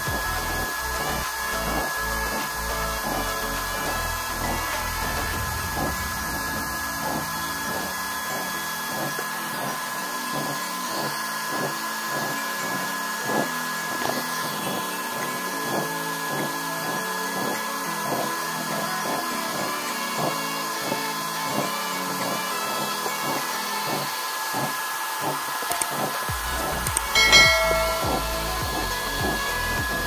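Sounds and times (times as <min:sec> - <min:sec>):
background music with beat: 0:00.0 - 0:10.7, 0:25.7 - 0:30.0
electric blower rushing and whining: 0:00.0 - 0:30.0.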